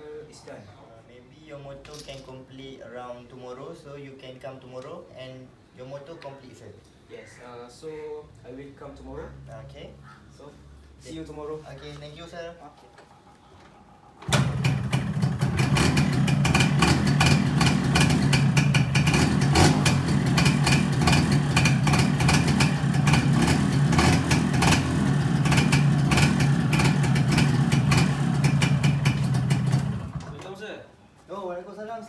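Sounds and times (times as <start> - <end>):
motorcycle engine starting and running: 14.2 - 30.4.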